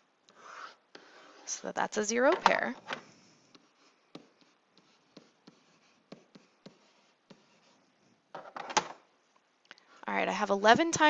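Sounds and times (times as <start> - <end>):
stylus tapping and scratching: 2.1 - 9.0.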